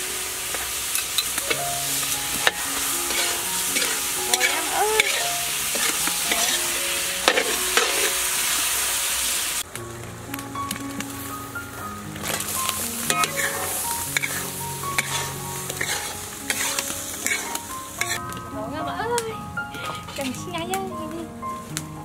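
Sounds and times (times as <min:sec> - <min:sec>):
shrimp sizzling in a wok: 0:00.0 - 0:09.7, 0:10.3 - 0:20.7
metal ladle scraping a wok: 0:00.5 - 0:08.8, 0:12.3 - 0:18.2, 0:19.8 - 0:20.4.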